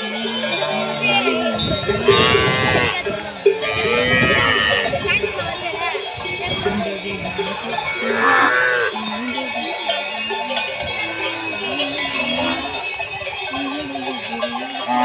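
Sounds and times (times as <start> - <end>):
cattle bells clanking: 0.0 - 15.0
cattle lowing: 1.0 - 5.5.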